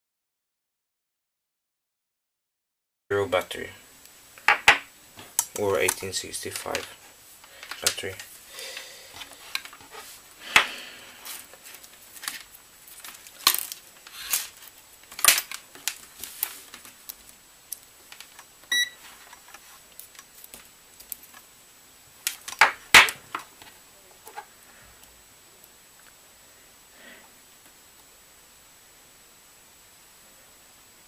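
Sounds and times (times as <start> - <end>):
short electronic beep: 18.7 - 19.0.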